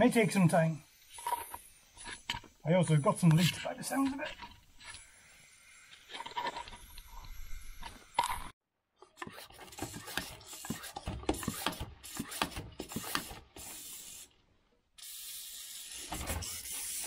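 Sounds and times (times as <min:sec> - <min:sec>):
hand pump rubbing clicking strokes: 0:09.2 - 0:14.3.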